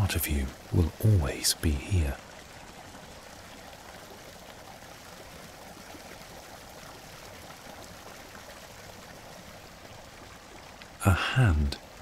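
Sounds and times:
stream running water: 0.0s - 12.0s.

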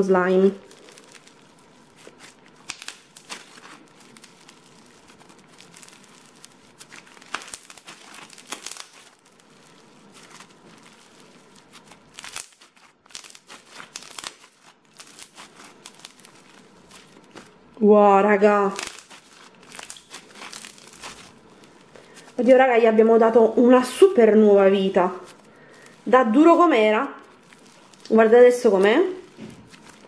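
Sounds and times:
slime crackling and clicking: 0.6s - 17.7s, 18.6s - 22.3s, 27.2s - 30.0s.

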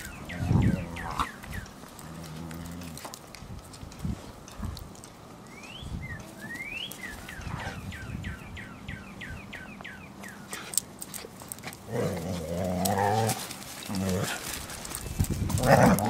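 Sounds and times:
dog growling: 11.9s - 14.6s, 15.5s - 16.0s.

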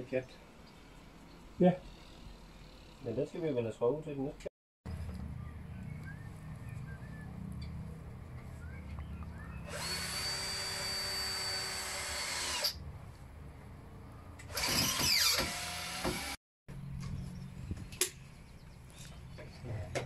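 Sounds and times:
power drill driving screw: 9.7s - 12.8s, 14.4s - 16.4s.

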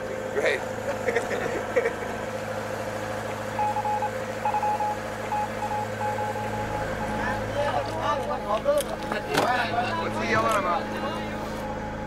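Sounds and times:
boat engine drone: 0.0s - 12.0s
morse code beeps over radio: 3.6s - 7.2s.

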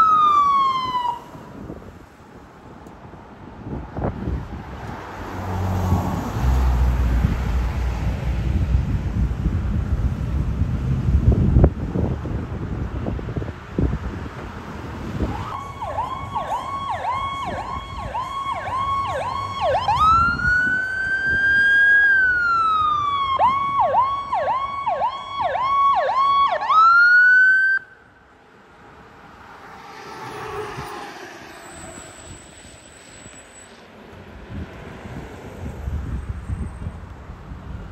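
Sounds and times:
ambulance siren: 0.0s - 1.8s, 15.2s - 28.1s
faint road noise: 0.0s - 37.9s.

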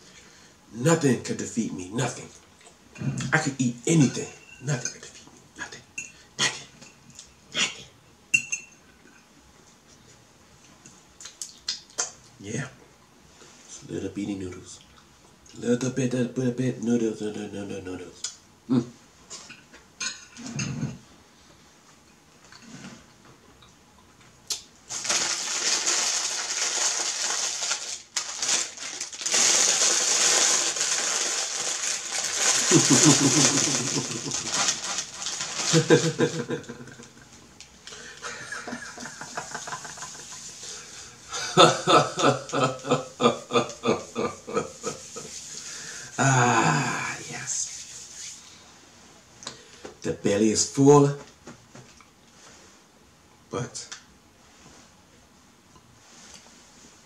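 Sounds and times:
fork clinking on plate: 8.3s - 8.8s
plastic bag crinkling: 24.9s - 36.6s
person's voice: 32.6s - 34.5s.

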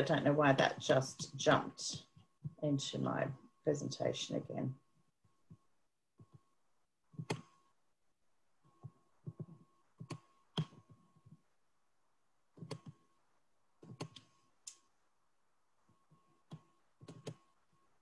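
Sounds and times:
computer mouse clicks: 7.2s - 7.5s, 9.2s - 10.9s, 12.6s - 13.0s, 13.8s - 14.8s, 16.5s - 17.5s.

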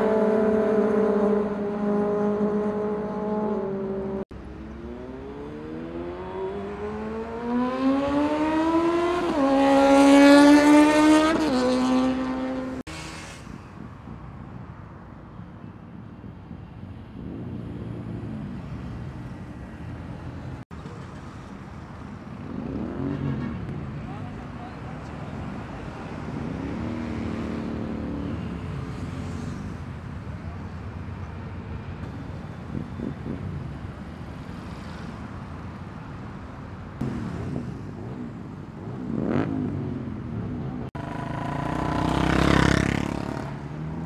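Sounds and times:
motorcycle engine accelerating: 0.0s - 12.8s, 37.0s - 44.0s
traffic noise: 0.0s - 44.0s.

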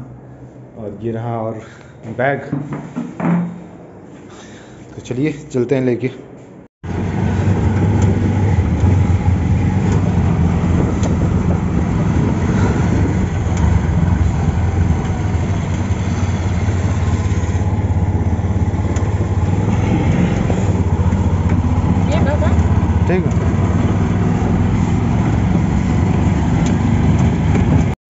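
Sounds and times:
auto-rickshaw engine running: 6.8s - 28.0s.

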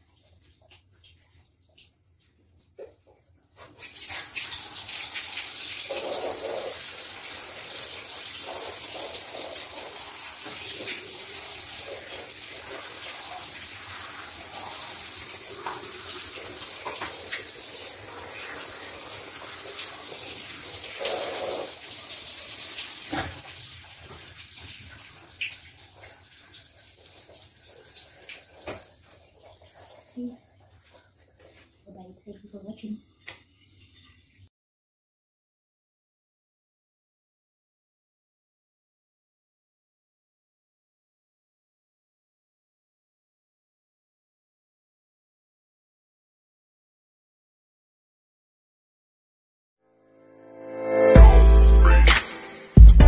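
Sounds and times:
shower water running: 0.0s - 34.5s.

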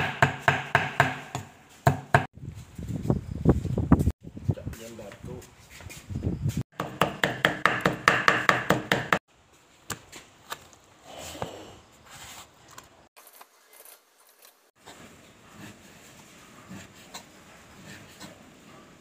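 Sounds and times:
knife chopping on wooden board: 0.0s - 2.3s, 6.8s - 9.2s.

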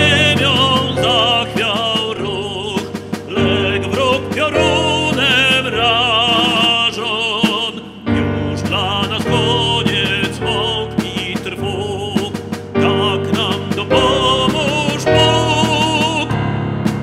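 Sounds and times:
tenor singing with vibrato: 0.0s - 16.5s
piano accompaniment: 0.0s - 17.0s.

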